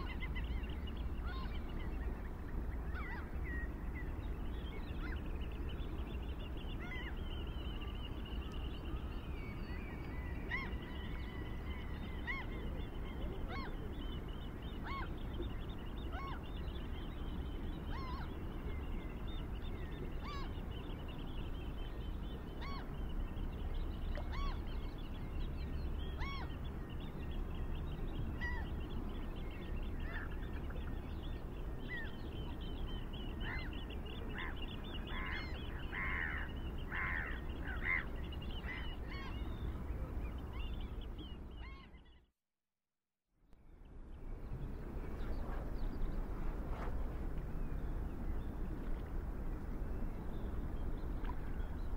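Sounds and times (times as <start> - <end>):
low hum: 43.6 - 51.9.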